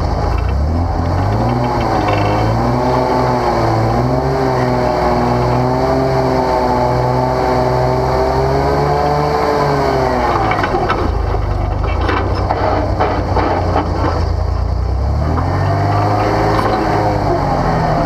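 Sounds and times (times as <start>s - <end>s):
off-road vehicle engine running: 0.0s - 18.0s
metal clanks: 0.1s - 4.1s, 10.3s - 17.5s.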